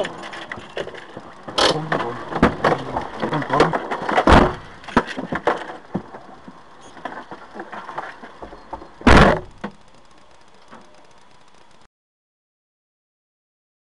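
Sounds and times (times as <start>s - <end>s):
heavy thump: 2.0s - 5.1s, 9.1s - 9.7s.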